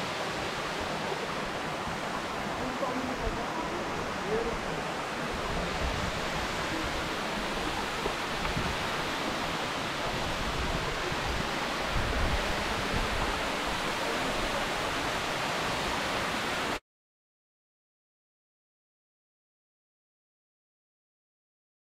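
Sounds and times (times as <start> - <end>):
waterfall rushing: 0.0 - 16.8.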